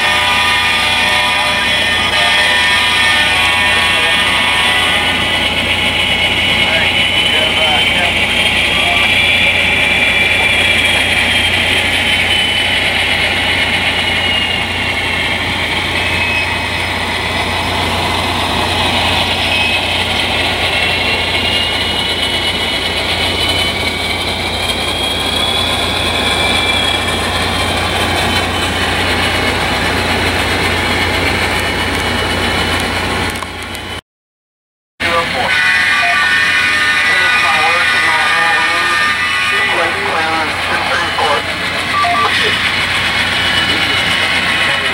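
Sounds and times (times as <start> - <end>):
high wavering whine: 0.0 - 29.7, 35.0 - 44.9
model diesel engine sound: 37.0 - 44.9.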